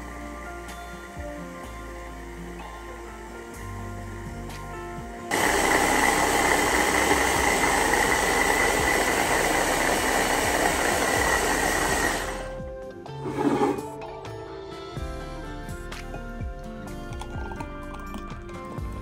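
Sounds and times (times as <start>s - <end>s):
electric chopper motor whirring: 5.3s - 12.6s.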